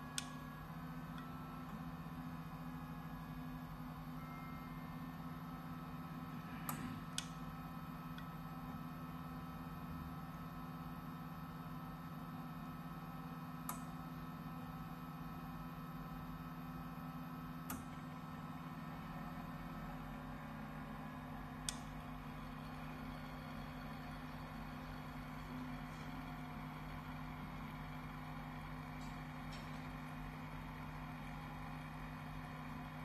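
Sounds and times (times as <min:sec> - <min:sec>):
inkjet printer humming: 0:17.3 - 0:33.0.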